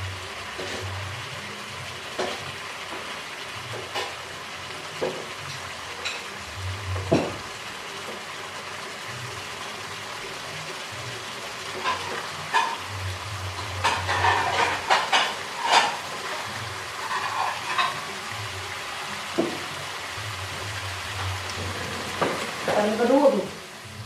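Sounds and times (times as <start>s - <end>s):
steady sizzling hiss: 0.0s - 24.0s.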